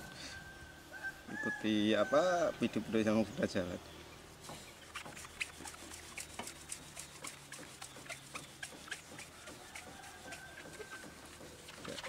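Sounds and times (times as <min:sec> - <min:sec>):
foam pad squeaking on paint: 0:04.2 - 0:12.0.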